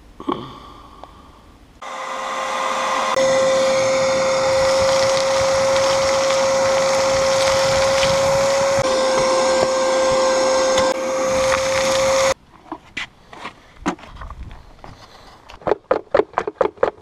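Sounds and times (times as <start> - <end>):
shop vacuum motor whine: 1.8 - 12.4.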